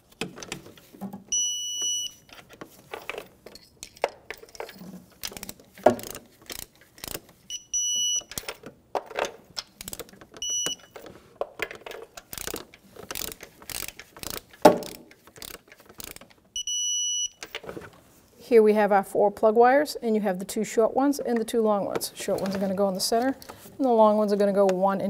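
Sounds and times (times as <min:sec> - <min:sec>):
torque wrench ratcheting clicks: 0:05.2 - 0:07.3, 0:12.2 - 0:16.4.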